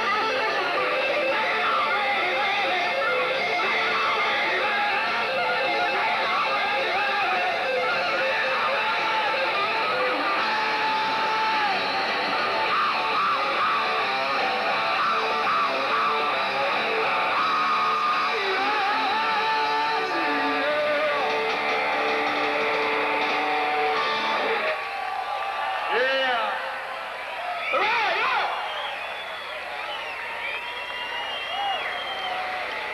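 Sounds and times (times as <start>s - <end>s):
drums: 0.0s - 26.0s
distorted electric guitars: 0.0s - 28.2s.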